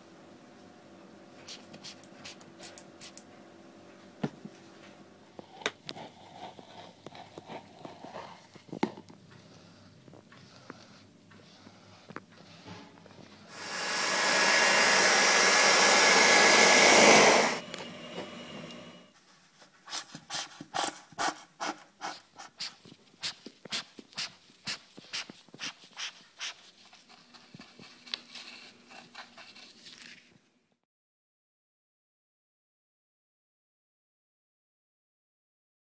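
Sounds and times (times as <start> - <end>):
loud hiss of air from duster: 13.5 - 19.0.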